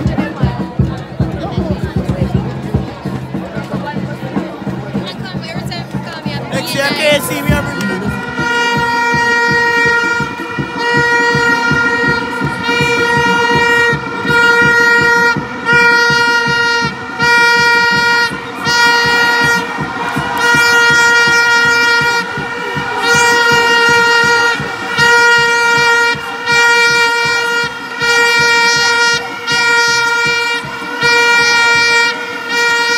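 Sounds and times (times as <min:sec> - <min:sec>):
handheld horn blasts: 0:06.6 - 0:32.9
crowd cheering and screaming: 0:18.3 - 0:25.0.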